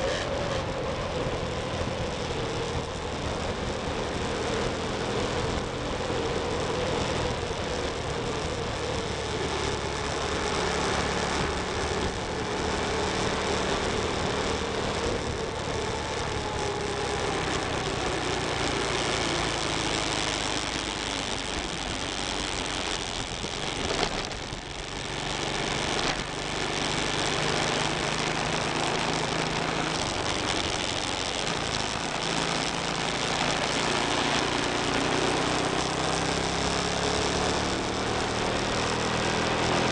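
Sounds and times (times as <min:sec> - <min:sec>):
wind rush on microphone: 0:00.0 - 0:26.4
motorcycle engine running: 0:00.0 - 0:39.9.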